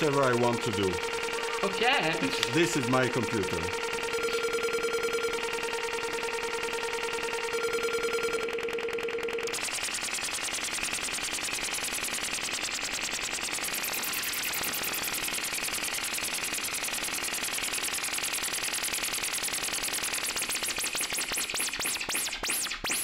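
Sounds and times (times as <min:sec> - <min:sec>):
filtered white noise pulsing flutter: 0:00.0 - 0:15.6.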